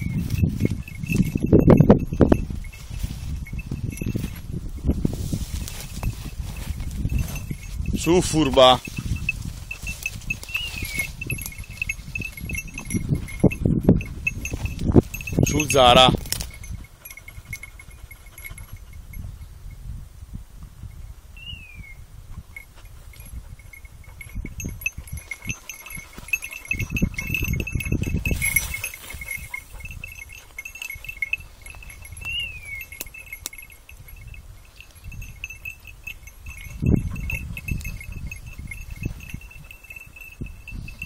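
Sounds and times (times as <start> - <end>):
small bells jingling: 0.0 - 19.9, 22.4 - 41.0.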